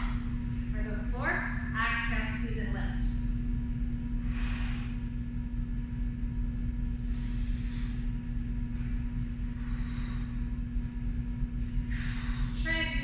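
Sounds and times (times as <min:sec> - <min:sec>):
steady low hum: 0:00.0 - 0:13.0
woman breathing softly: 0:04.2 - 0:05.2, 0:06.9 - 0:08.2, 0:09.4 - 0:10.7, 0:11.8 - 0:12.7.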